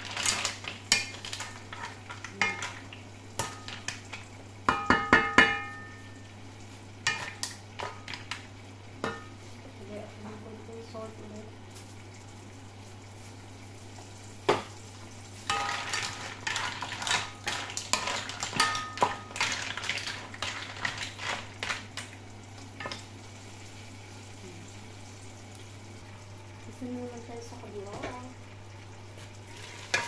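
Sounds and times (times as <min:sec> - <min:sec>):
mussel shells clattering in a pan: 0:00.0 - 0:06.0, 0:07.1 - 0:08.5, 0:15.4 - 0:22.2.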